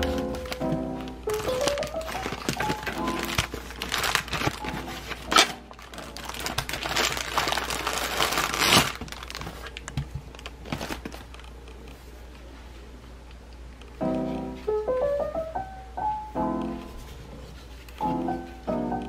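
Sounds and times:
plastic packaging crinkling: 0.0s - 12.1s.

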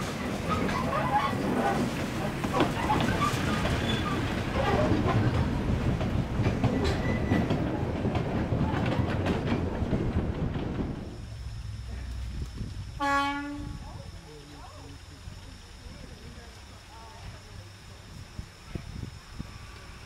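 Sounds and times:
wheels clicking over rail joints: 0.0s - 11.3s
diesel locomotive rumbling past: 0.0s - 20.0s.

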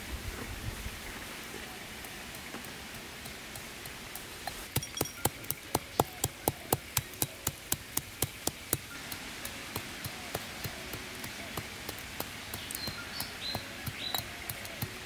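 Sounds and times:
pestle pounding in stone mortar: 4.7s - 8.9s, 9.7s - 15.0s.

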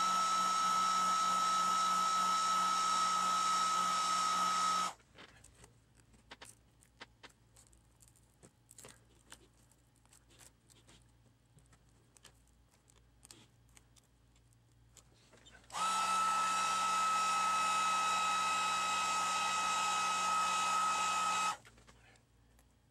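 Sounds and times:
heat gun whining: 0.0s - 5.0s, 15.7s - 21.6s.

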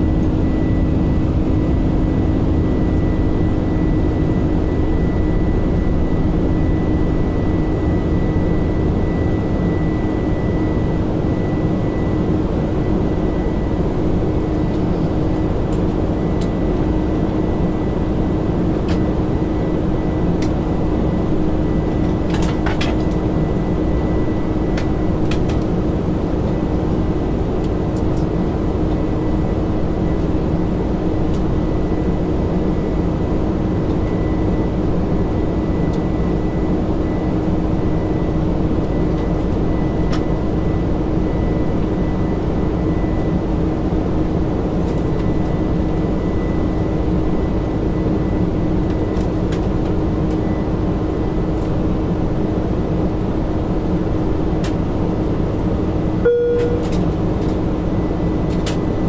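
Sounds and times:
airliner engine and airflow rumble: 0.0s - 59.0s
constant low hum: 0.0s - 59.0s.

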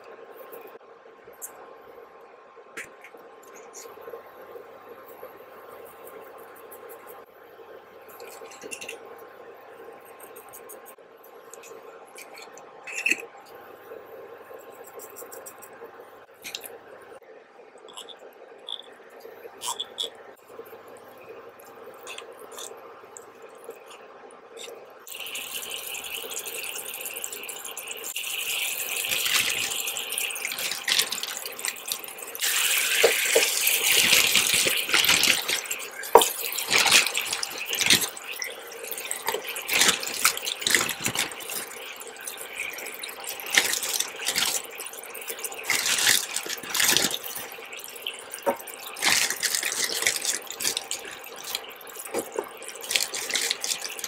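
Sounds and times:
sharp crackles and spits: 17.8s - 54.0s
oil sizzling in a pan: 25.0s - 54.0s.

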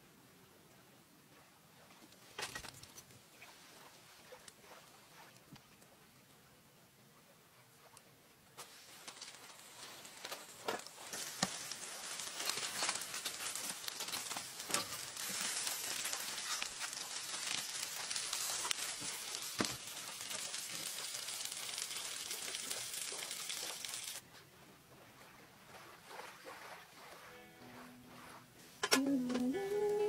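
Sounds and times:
foil crinkling: 8.6s - 24.2s
food sizzling with pops and crackles: 8.6s - 24.2s.

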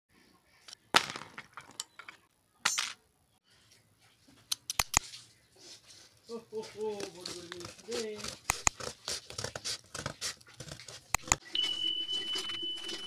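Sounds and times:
stationery clattering on cardboard: 0.9s - 3.0s
scissors clicking: 8.2s - 8.8s.

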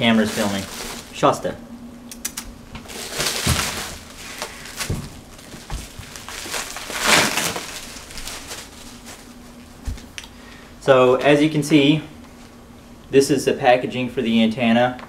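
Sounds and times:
bubble wrap crinkling: 0.0s - 1.5s, 2.8s - 10.3s.

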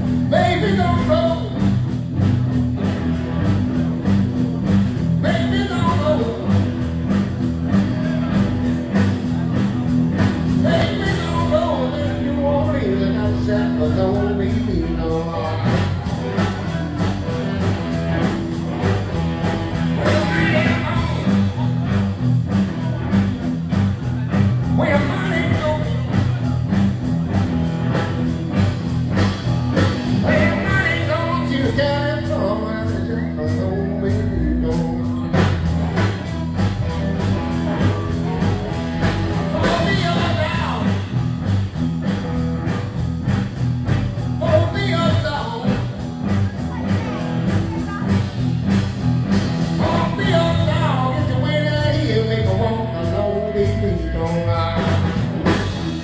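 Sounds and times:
live blues band playing: 0.0s - 56.0s.

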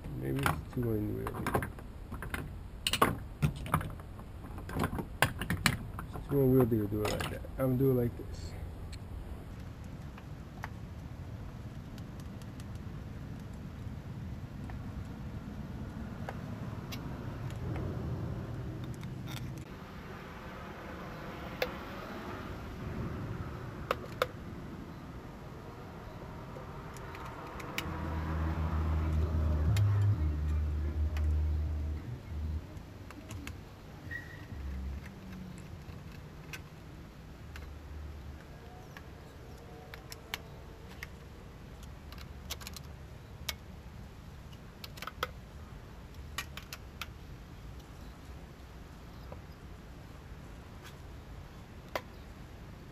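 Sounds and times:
low rumble: 24.4s - 32.7s.

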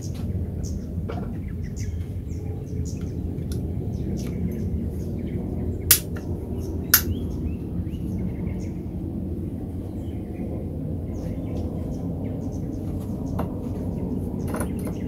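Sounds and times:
small birds chirping: 0.0s - 15.0s
steady low rumble: 0.0s - 15.0s
sharp clicks: 5.9s - 6.2s, 7.0s - 7.2s.

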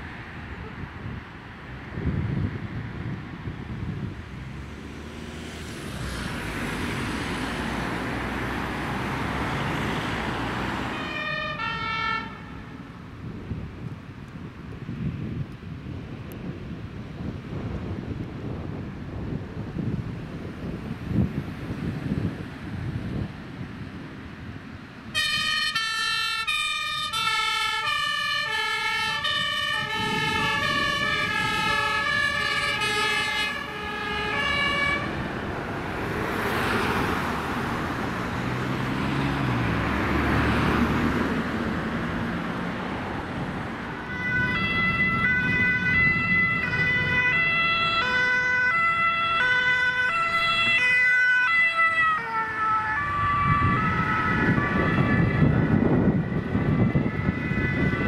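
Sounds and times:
vehicle engine and road noise: 0.0s - 58.0s
two-tone emergency siren: 10.9s - 12.8s, 25.1s - 35.2s, 43.9s - 58.0s.

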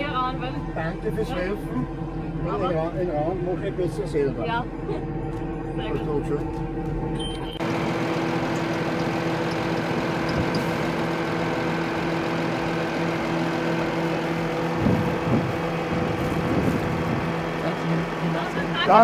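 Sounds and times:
tractor diesel engine running: 7.4s - 19.0s.

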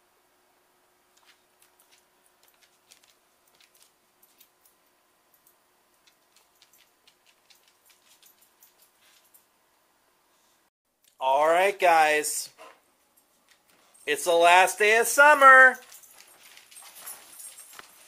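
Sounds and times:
collar tags jingling: 1.8s - 9.5s, 12.9s - 18.0s.

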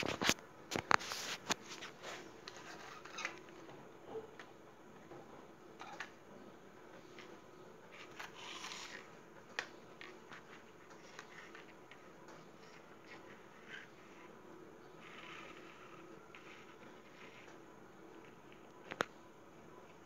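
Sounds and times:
toy vehicles scraping on concrete: 7.9s - 9.1s, 15.0s - 17.5s.

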